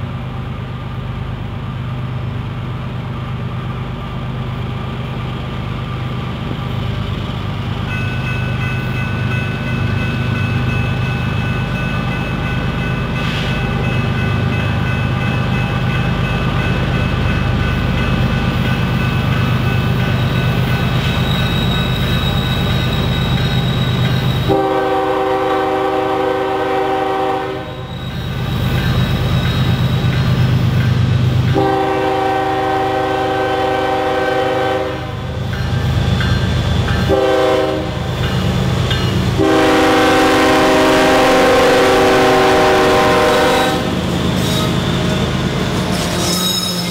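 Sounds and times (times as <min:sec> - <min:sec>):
diesel locomotives rumbling: 0:00.0 - 0:46.9
train horn blasts: 0:24.5 - 0:27.9, 0:31.5 - 0:35.3, 0:37.0 - 0:38.1, 0:39.4 - 0:44.7.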